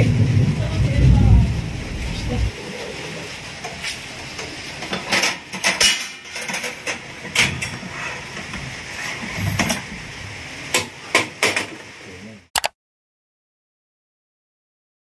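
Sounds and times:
steady hiss: 0.6 - 12.5
metal oven rack clinking: 4.3 - 7.8.

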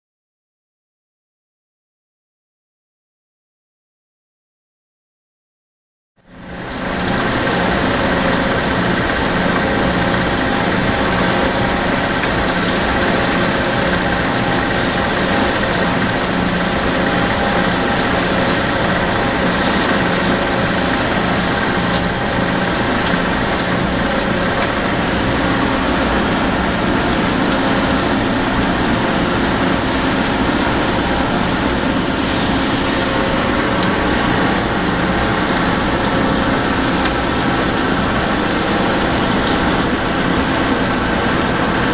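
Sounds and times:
boring mill machine humming: 6.2 - 41.9.

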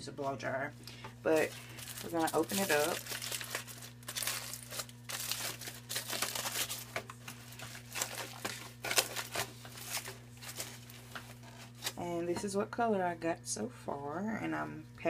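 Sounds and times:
aluminium foil crinkling: 1.3 - 12.0.

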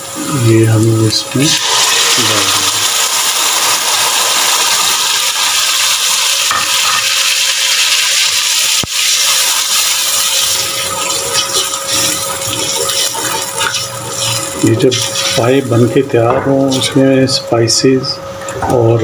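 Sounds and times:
mixture sizzling in hot oil: 0.4 - 17.4
wooden spoon scraping: 10.2 - 17.1.

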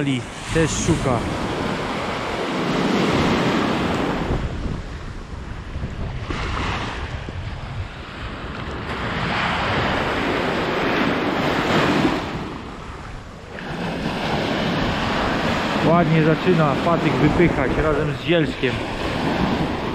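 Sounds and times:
surf breaking over shallows: 0.0 - 19.9
wind rumble on microphone: 0.0 - 19.9.

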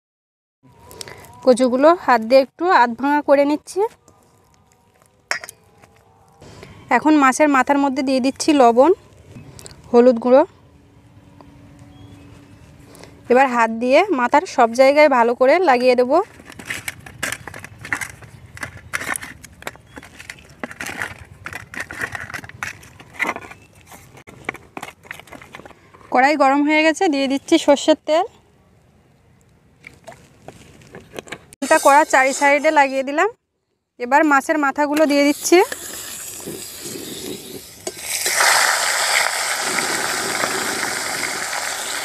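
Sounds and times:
fish sizzling in hot oil: 35.3 - 42.0.

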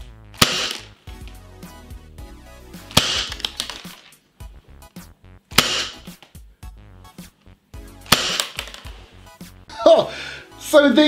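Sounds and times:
background music: 0.0 - 11.0
airsoft revolver shots: 0.4 - 1.0, 2.9 - 4.1, 5.5 - 6.2, 8.1 - 8.9.

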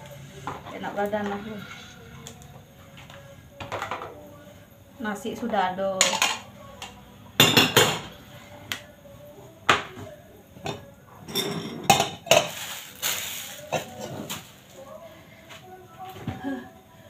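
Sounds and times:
dishes and cutlery clinking: 3.0 - 4.2, 6.0 - 8.2, 9.7 - 14.5.

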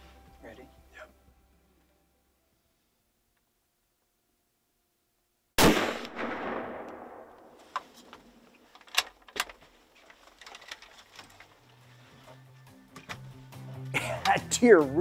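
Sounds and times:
gunshot with echoes: 5.6 - 7.6.

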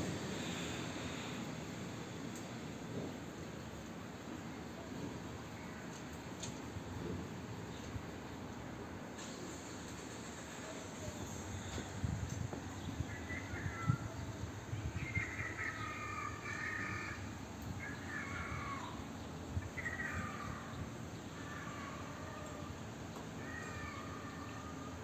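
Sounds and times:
bird calling: 12.7 - 22.8, 23.4 - 25.0.

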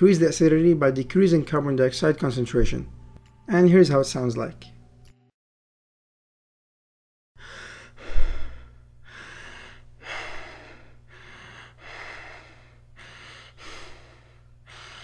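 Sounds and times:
faint steady hum: 0.0 - 5.1, 7.4 - 15.0
person breathing deeply and rapidly: 7.4 - 15.0.

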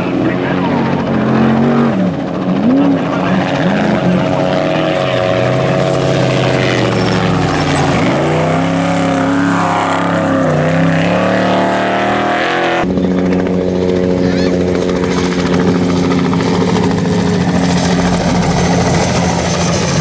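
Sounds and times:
race truck engine revving: 0.0 - 12.9.

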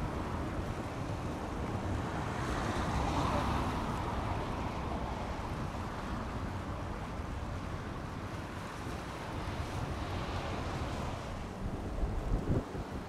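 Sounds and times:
wind buffeting microphone: 5.4 - 13.0.

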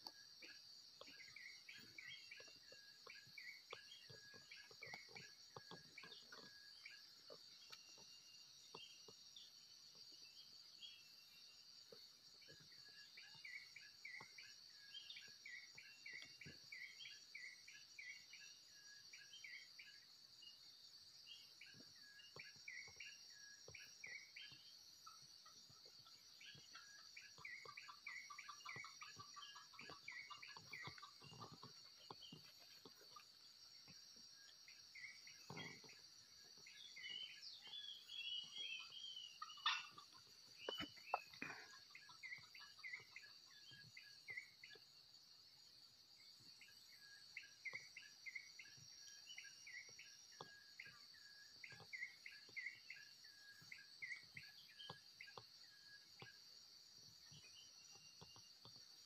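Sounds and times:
insects droning: 0.0 - 59.0
small birds chirping: 0.0 - 59.0
sharp bird calls: 36.7 - 43.3.

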